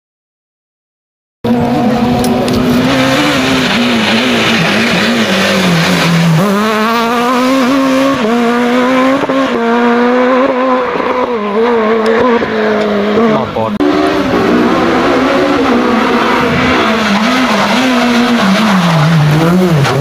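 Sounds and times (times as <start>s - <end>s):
rally car engine revving: 1.4s - 20.0s.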